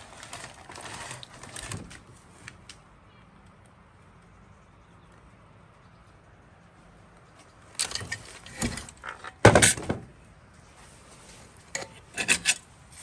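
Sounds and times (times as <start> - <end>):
chainsaw parts clicking and knocking: 7.8 - 10.0.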